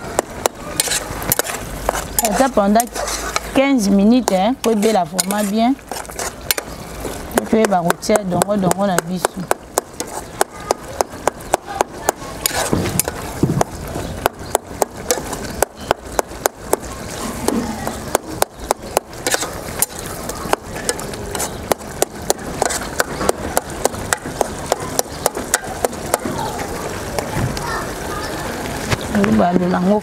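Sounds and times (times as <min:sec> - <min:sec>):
metal spoon scraping a pot: 0:00.4 - 0:11.1, 0:12.3 - 0:13.4, 0:19.1 - 0:25.8.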